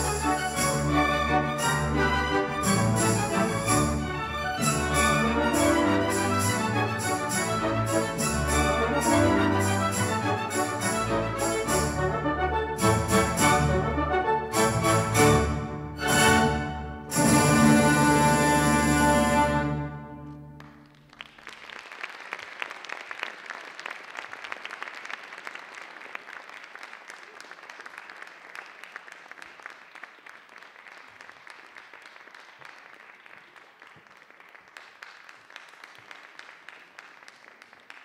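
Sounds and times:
audience applause: 20.6 - 38.0.

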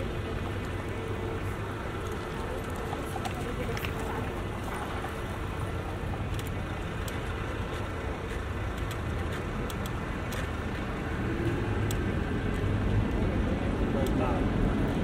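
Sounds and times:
road traffic rumble: 0.0 - 15.0
faint clicks: 6.2 - 10.8.

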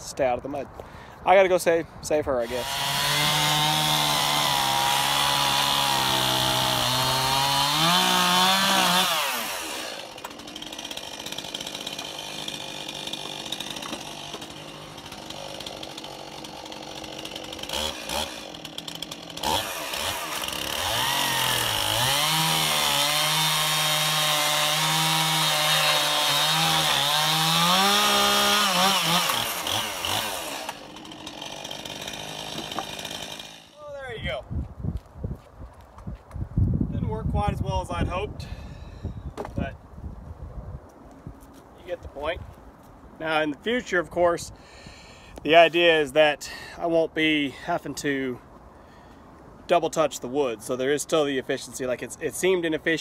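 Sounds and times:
chainsaw cutting wood: 2.4 - 33.8
chainsaw idling: 2.4 - 33.8.

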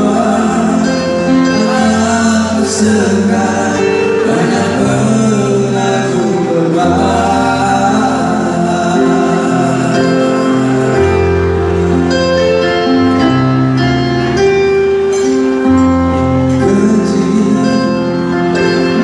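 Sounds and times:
man singing into a microphone: 0.0 - 12.1, 16.3 - 19.0
bass notes: 0.0 - 19.0
live band music: 0.0 - 19.0.

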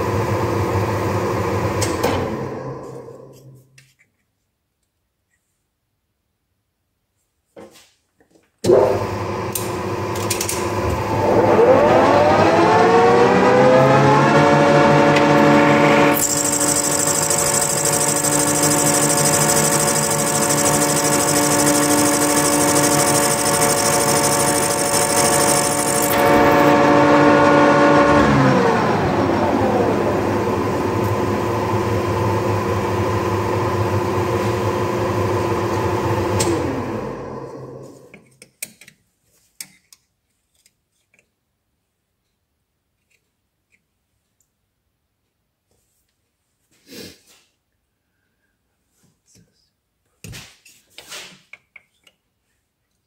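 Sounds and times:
metal lathe gear whine: 13.8 - 30.1.

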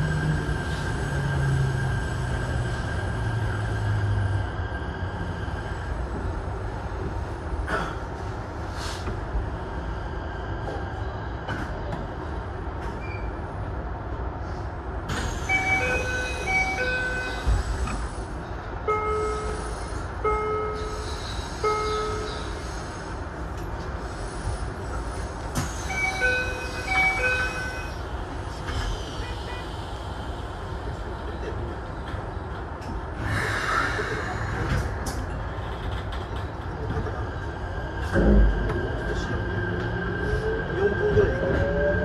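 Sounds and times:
train cab rumble: 0.0 - 42.0.

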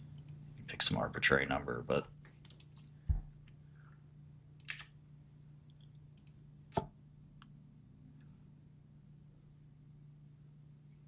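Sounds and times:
faint low hum: 0.0 - 11.0
computer mouse clicks: 0.1 - 0.4, 2.4 - 3.6, 4.6 - 5.0, 5.7 - 7.5.

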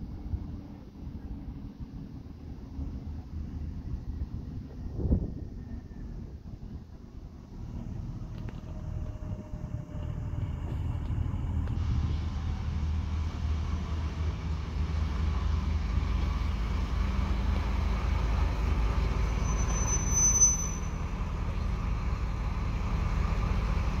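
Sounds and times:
diesel engine low rumble: 0.0 - 24.0
brief high squeal: 19.2 - 21.1.

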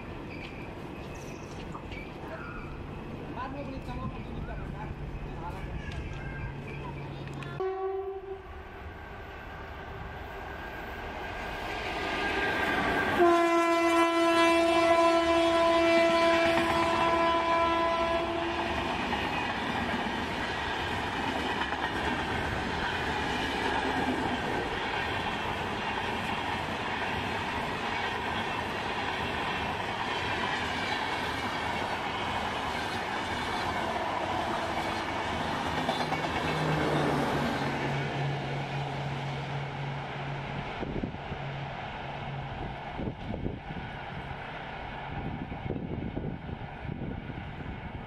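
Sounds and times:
train coaches clattering past: 0.0 - 46.4
train horn: 7.6 - 8.6, 13.0 - 18.9.

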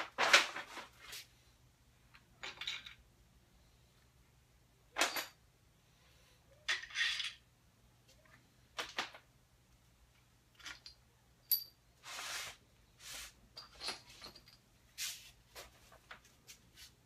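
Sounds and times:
metal parts clinking: 6.7 - 7.4, 10.5 - 11.8.

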